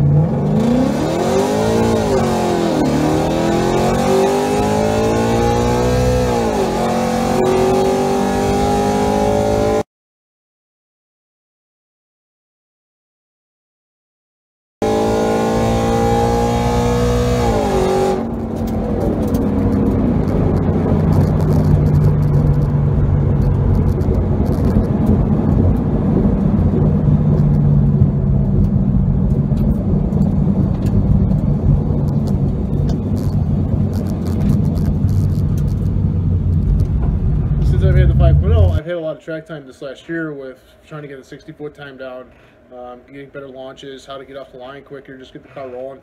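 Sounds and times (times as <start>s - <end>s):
car engine at full throttle: 0.0s - 9.8s, 14.8s - 38.8s
wind and road noise: 0.0s - 9.8s, 14.8s - 38.8s.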